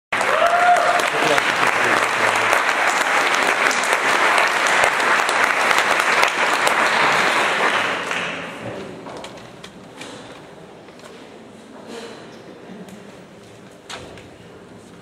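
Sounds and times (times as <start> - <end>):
audience applauding: 0.1 - 8.6.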